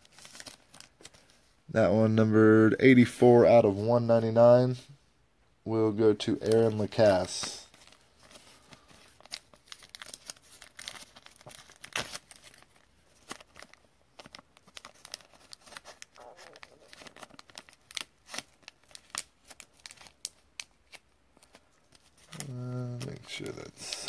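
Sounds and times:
plastic card sleeve crinkling: 0.0 - 1.4, 6.4 - 24.0.

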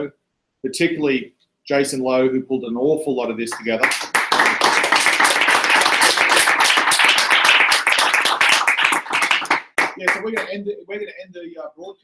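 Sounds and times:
audience applauding: 3.6 - 10.5.

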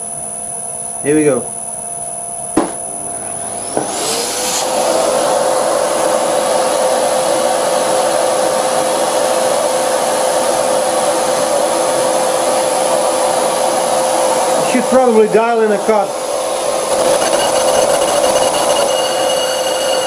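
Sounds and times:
lathe cutting brake disc: 2.9 - 6.3, 16.5 - 20.0
ringing tone over hiss: 16.9 - 20.0.

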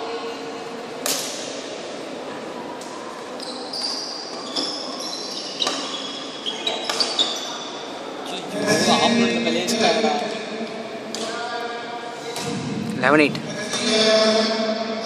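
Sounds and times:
shoes squeaking on court: 3.3 - 7.9.

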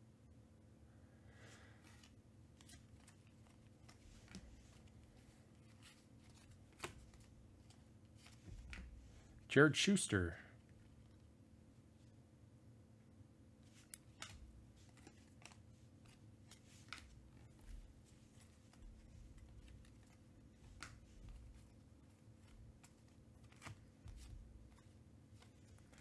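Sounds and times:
faint steady hum: 0.0 - 26.0
cards sliding and clicking: 1.8 - 9.0, 13.6 - 26.0.

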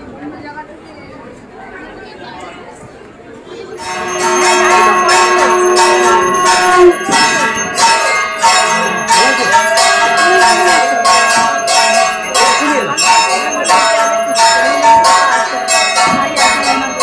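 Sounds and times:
bells ringing rapidly: 3.7 - 17.0
steady held note: 3.8 - 12.3.

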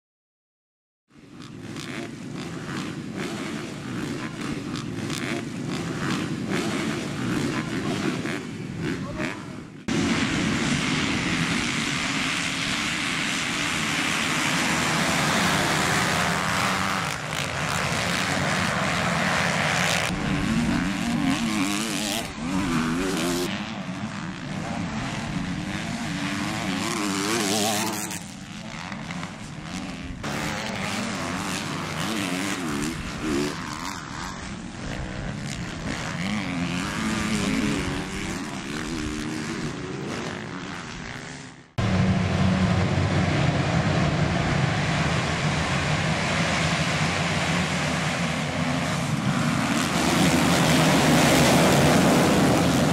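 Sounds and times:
dirt bikes revving past: 1.1 - 52.9
pack of motocross bikes: 1.2 - 41.9.

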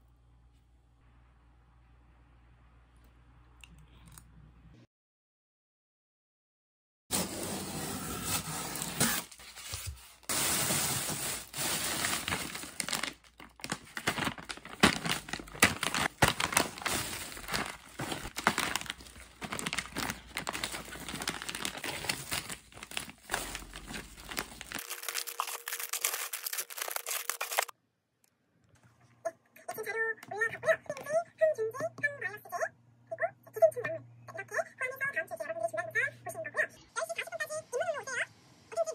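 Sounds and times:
plastic packaging crinkling: 8.4 - 27.7.

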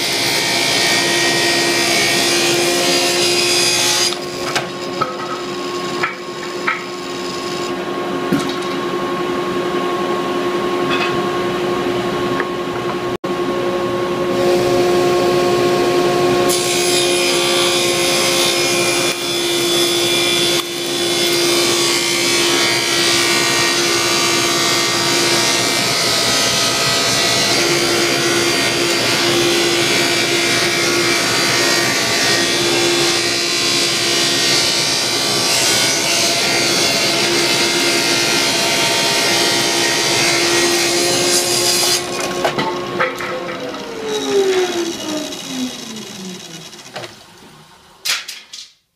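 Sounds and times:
saw blade cutting wood: 0.0 - 7.8, 16.4 - 47.2
table saw motor hum: 0.0 - 8.3, 8.9 - 48.0.

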